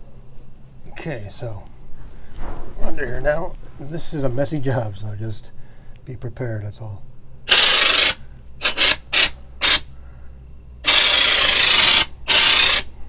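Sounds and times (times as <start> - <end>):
spray gun hissing bursts: 7.5 - 9.9, 10.8 - 13.0.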